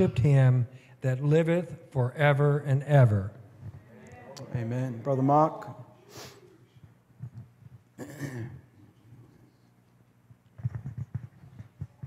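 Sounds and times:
person clearing throat: 0:08.0 - 0:08.8.

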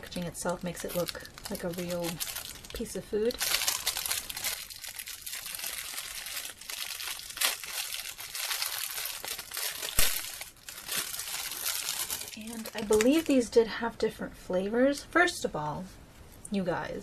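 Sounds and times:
plastic bag crinkling: 0:00.0 - 0:13.4.

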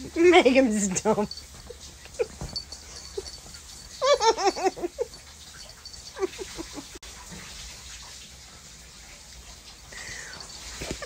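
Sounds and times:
woman giggling: 0:00.8 - 0:03.4, 0:04.0 - 0:05.2, 0:06.2 - 0:07.0.

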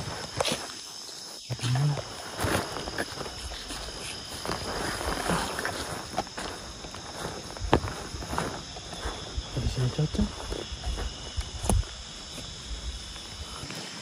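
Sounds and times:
crickets trilling: 0:00.0 - 0:14.0
footsteps on ground: 0:00.0 - 0:14.0
man's voice low hum: 0:01.5 - 0:02.2, 0:09.4 - 0:10.6.

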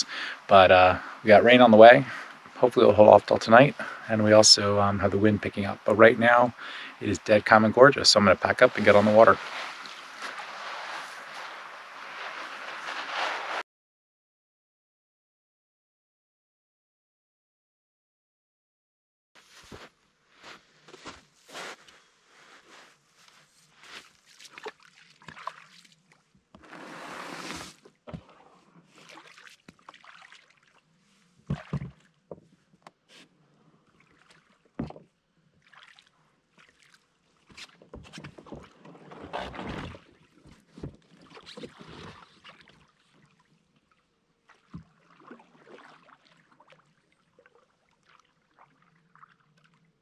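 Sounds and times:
water splashing: 0:05.5 - 0:13.6, 0:24.2 - 0:28.4, 0:29.0 - 0:30.8, 0:31.5 - 0:32.1, 0:35.6 - 0:37.1, 0:44.5 - 0:46.8
rushing scrape: 0:08.2 - 0:13.6, 0:26.6 - 0:27.8.

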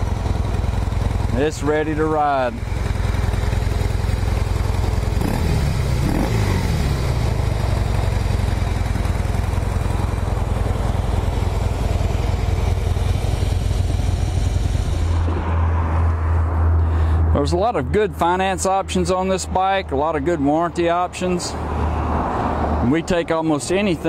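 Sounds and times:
motorcycle engine idling: 0:00.0 - 0:15.3.

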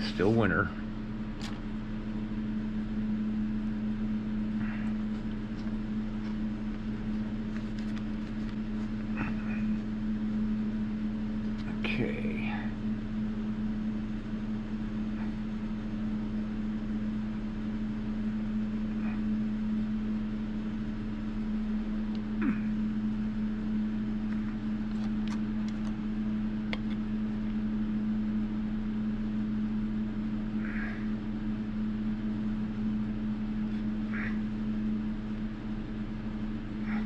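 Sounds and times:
machine hum with low tone: 0:00.0 - 0:37.0.

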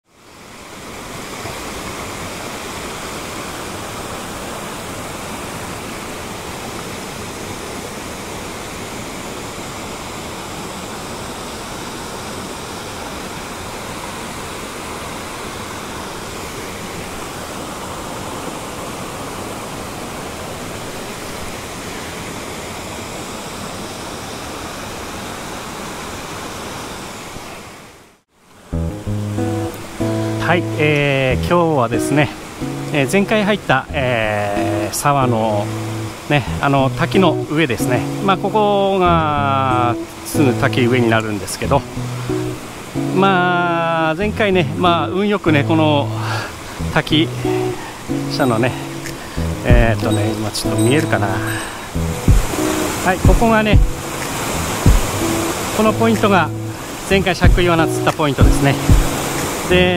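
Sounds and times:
stream water rushing: 0:00.1 - 0:59.9.

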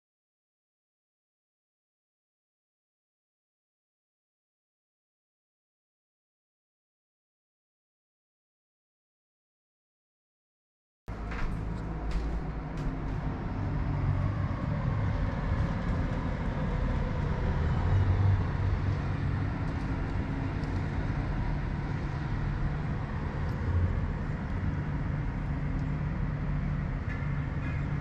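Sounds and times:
city traffic rumble: 0:11.1 - 0:28.0.

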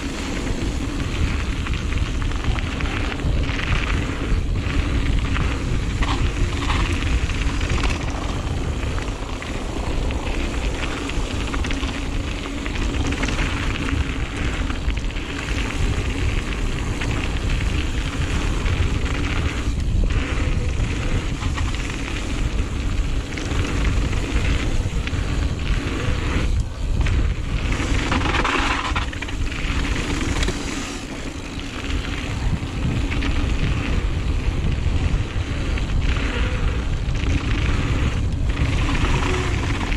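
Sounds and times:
mountain bike tyre roar and rattle: 0:00.0 - 0:39.9
wind rumbling on microphone: 0:00.0 - 0:39.9.

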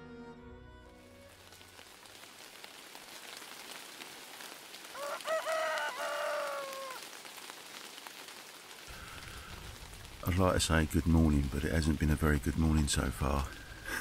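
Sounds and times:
rain pattering: 0:01.0 - 0:14.0
rooster crowing: 0:04.9 - 0:07.0.

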